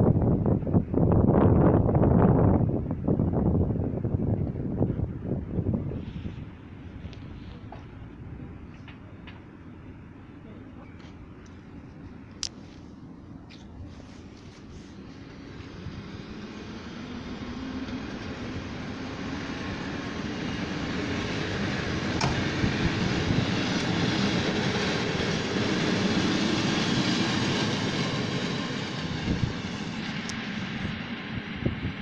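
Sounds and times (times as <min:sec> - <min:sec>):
train carriages rumbling on rails: 0:15.1 - 0:32.0.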